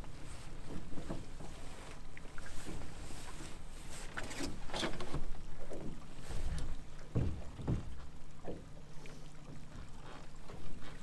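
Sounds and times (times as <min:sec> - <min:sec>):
dull knocks: 0:07.1 - 0:08.7.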